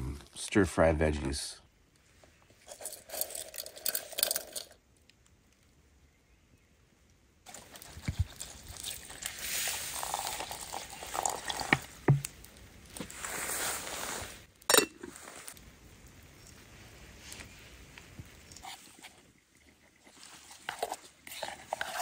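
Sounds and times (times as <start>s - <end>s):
water pouring into metal pot: 8.8s - 12.3s
small knocks: 11.7s - 12.4s.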